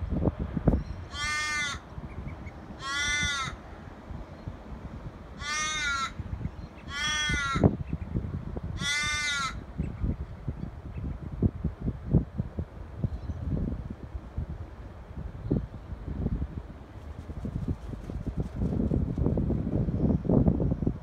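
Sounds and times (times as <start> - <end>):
wind rumble on microphone: 0.0 - 21.0
crow cawing: 1.1 - 1.8, 2.8 - 3.6, 5.4 - 6.2, 6.9 - 7.7, 8.8 - 9.6.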